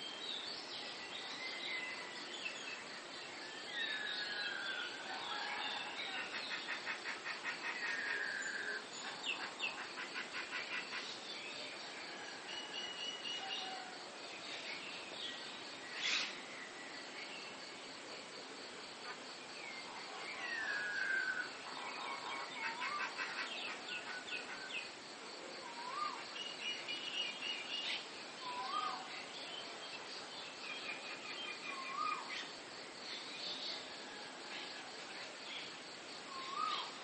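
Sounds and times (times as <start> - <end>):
insect trill: 0.0 - 37.0
birds singing and chattering: 25.7 - 37.0.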